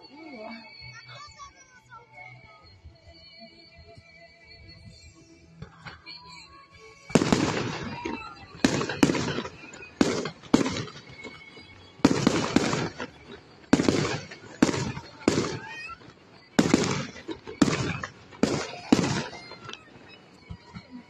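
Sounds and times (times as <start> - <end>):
fireworks bursting: 7.0 - 21.0.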